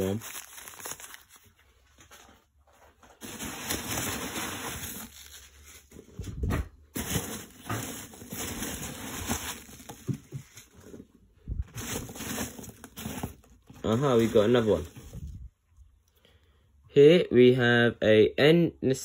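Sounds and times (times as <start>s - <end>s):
packing peanuts rustling and squeaking: 0.0s - 1.7s, 3.0s - 6.2s, 6.9s - 11.0s, 11.8s - 15.0s.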